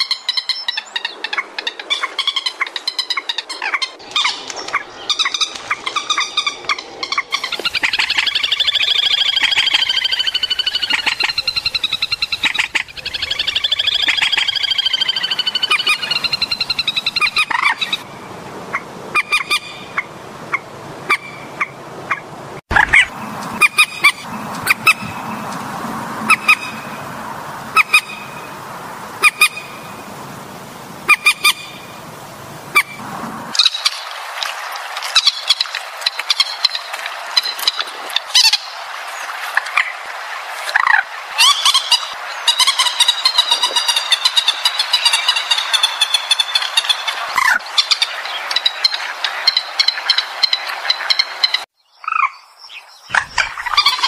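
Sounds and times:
harsh honking bird calls: 0:18.7 - 0:33.6.

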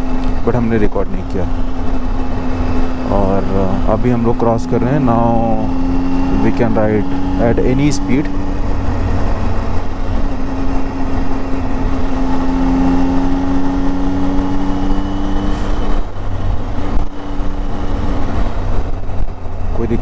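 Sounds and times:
motorcycle engine running: 0:00.0 - 0:20.0
wind rumble on microphone: 0:12.8 - 0:20.0.

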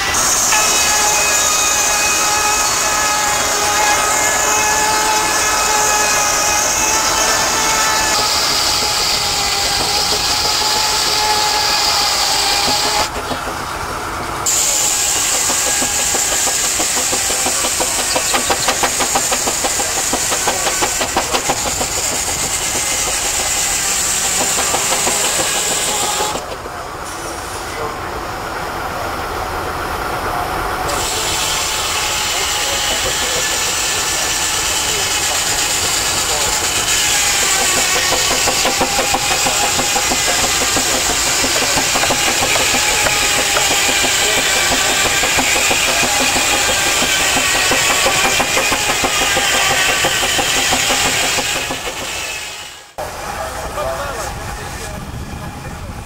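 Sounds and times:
steam hiss: 0:00.0 - 0:13.6, 0:14.4 - 0:28.0, 0:30.8 - 0:55.2
steam engine mechanical clatter: 0:00.1 - 0:27.6, 0:30.9 - 0:52.9
fast regular mechanical beat: 0:14.6 - 0:26.6, 0:36.8 - 0:52.3.

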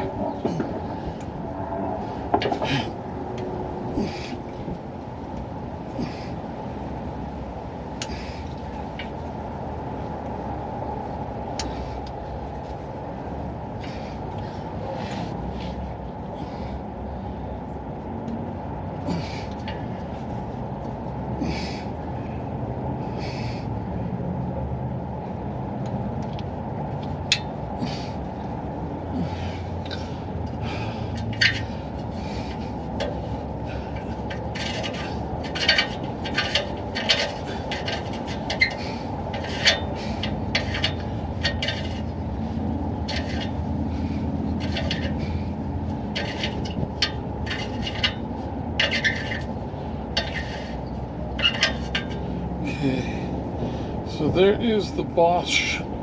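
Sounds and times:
low rumble: 0:00.0 - 0:54.6
metallic scrapes and clicks: 0:29.8 - 0:52.4.

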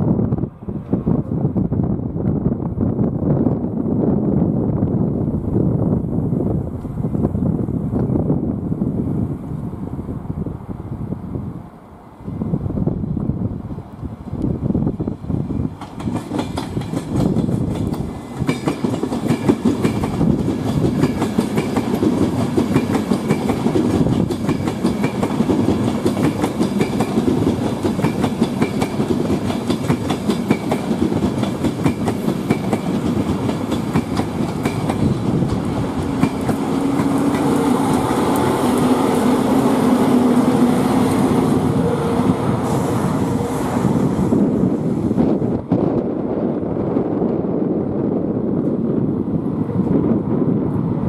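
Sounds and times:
train wheels clattering: 0:15.8 - 0:41.2.

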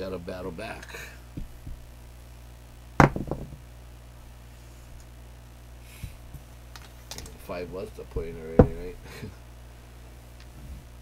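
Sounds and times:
dice landing on felt: 0:03.0 - 0:03.6.

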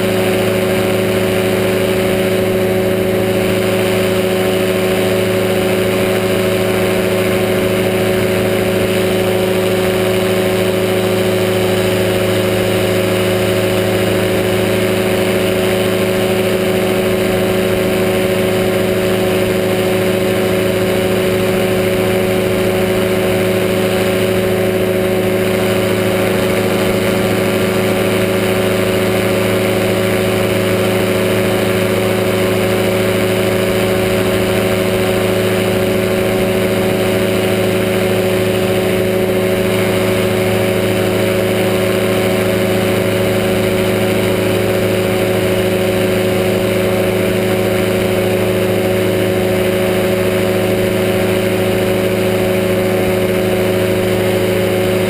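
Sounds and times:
aircraft engine droning: 0:00.0 - 0:55.0.

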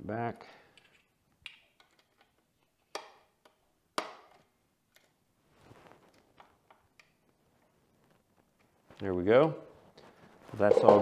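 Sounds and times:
soft scuffle: 0:05.5 - 0:06.1.

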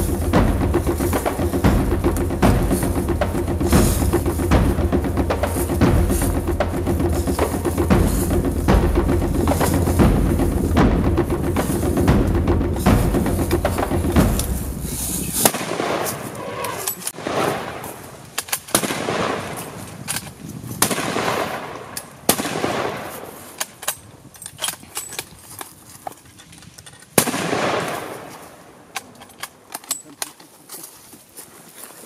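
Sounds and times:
footsteps crunching through dry leaves: 0:00.0 - 0:16.3, 0:30.4 - 0:32.0.

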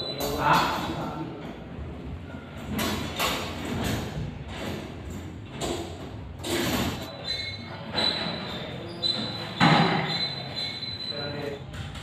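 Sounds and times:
high-pitched metal squeal: 0:07.1 - 0:11.6.

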